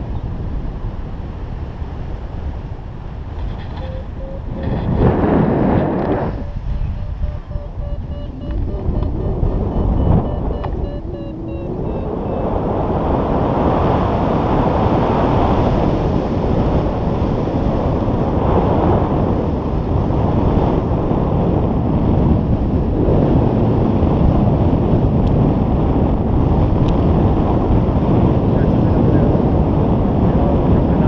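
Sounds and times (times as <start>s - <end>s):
wind rushing over microphone: 0.0s - 31.0s.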